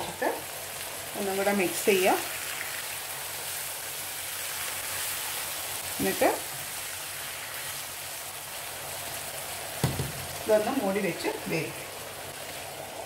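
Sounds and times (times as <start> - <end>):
vegetables sizzling in oil: 0.0 - 13.0
spatula stirring in pan: 2.3 - 10.7
sharp knock: 9.8 - 10.3.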